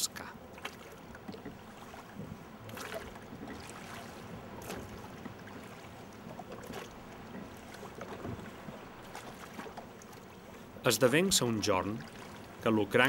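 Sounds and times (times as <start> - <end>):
oars splashing in water: 0.0 - 13.0.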